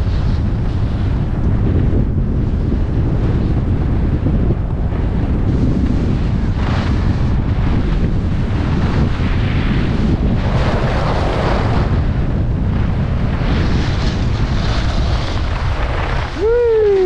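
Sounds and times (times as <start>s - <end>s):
low rumble: 0.0s - 17.0s
wind rushing over microphone: 0.0s - 17.0s
skis carving hissing snow: 5.5s - 12.0s, 12.7s - 17.0s.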